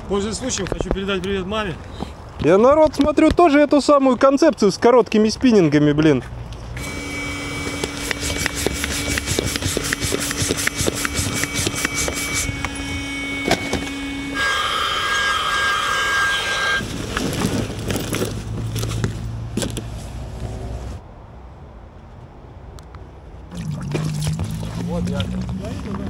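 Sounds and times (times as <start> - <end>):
electric air pump whining: 6.8 - 16.9.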